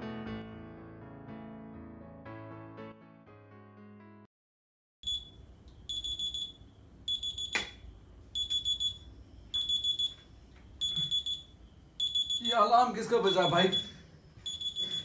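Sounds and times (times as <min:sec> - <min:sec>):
alarm beeping: 0:05.0 - 0:15.0
sharp click: 0:07.5 - 0:07.8.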